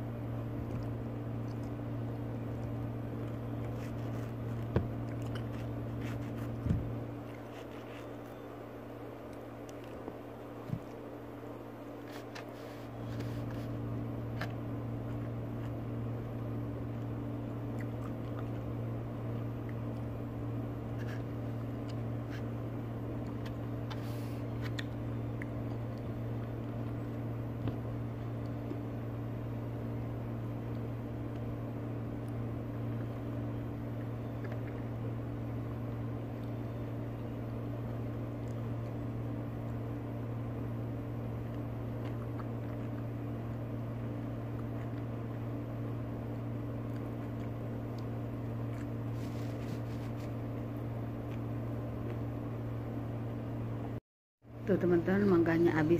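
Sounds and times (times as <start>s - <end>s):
motor hum: 0.0s - 55.9s
person chewing: 0.6s - 8.5s, 16.9s - 20.1s, 41.4s - 45.7s, 46.6s - 50.4s.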